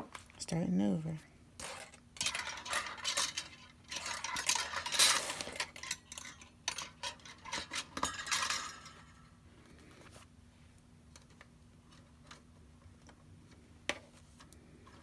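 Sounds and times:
metal wire rattling and clinking: 0:01.6 - 0:09.4.

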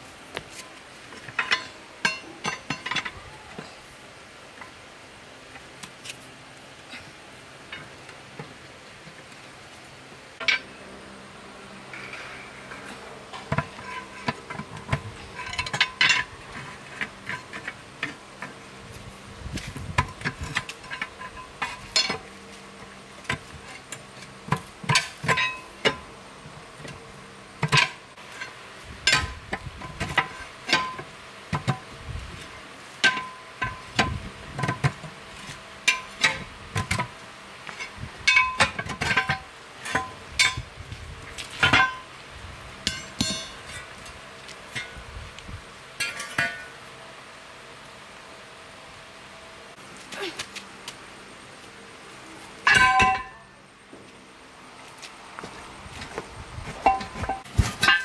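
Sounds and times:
metal clanks on wheel rim: 0:01.2 - 0:03.2, 0:10.4 - 0:10.8, 0:11.9 - 0:18.6, 0:19.6 - 0:22.3, 0:23.2 - 0:26.1, 0:27.6 - 0:31.9, 0:33.0 - 0:40.7, 0:41.4 - 0:42.1, 0:42.8 - 0:44.0, 0:46.0 - 0:46.8, 0:52.6 - 0:53.6, 0:56.8 - 0:58.0.

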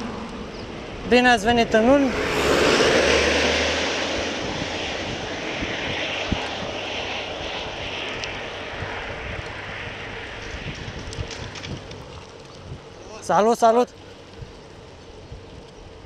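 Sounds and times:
diesel truck passing: 0:00.0 - 0:10.4
road and wind hiss: 0:00.0 - 0:16.0.

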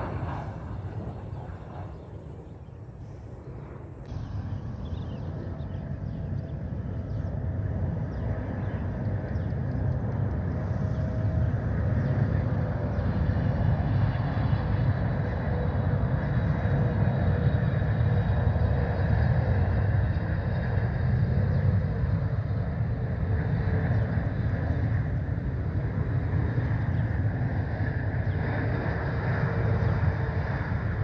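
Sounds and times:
airliner jet engines rumbling: 0:00.0 - 0:31.0.

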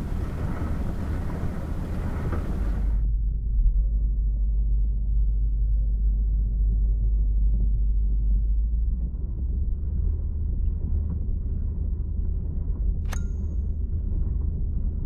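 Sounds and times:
dishwasher churning and rumbling: 0:00.0 - 0:03.0.

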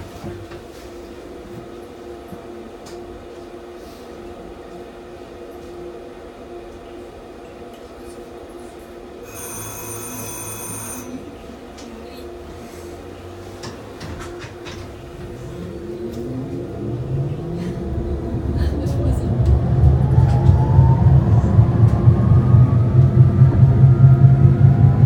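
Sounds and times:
tram electrical hum: 0:00.0 - 0:25.0
tram bell ringing: 0:09.2 - 0:12.4.

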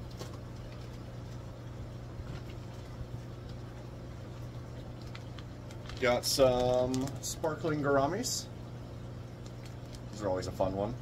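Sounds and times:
low electrical hum: 0:00.0 - 0:11.0
plastic bags crinkling: 0:04.9 - 0:07.7.

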